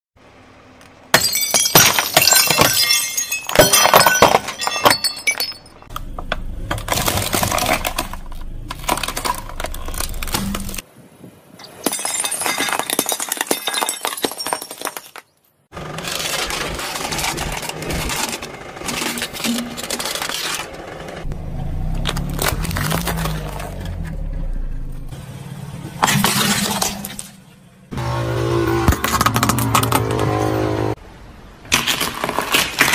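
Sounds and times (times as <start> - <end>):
glass and ceramic crunching: 1.2 - 10.8, 11.6 - 15.5
car engine hum: 5.9 - 10.8, 18.3 - 31.2.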